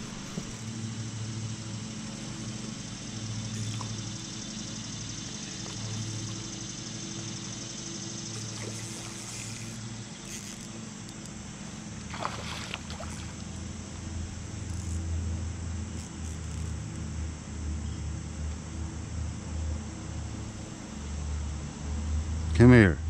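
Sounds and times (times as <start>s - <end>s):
river water rushing around kayak: 8.2s - 10.3s, 11.3s - 14.5s.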